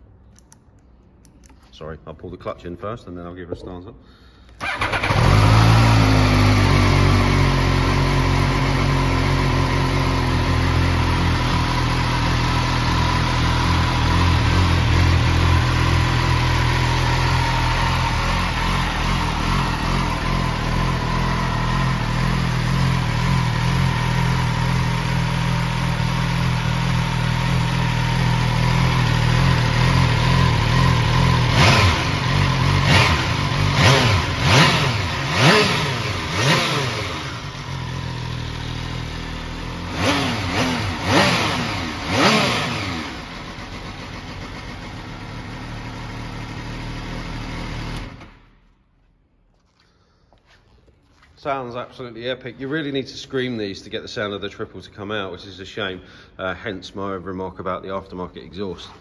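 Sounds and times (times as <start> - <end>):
motorcycle engine idling and revving: 4.6 - 48.7.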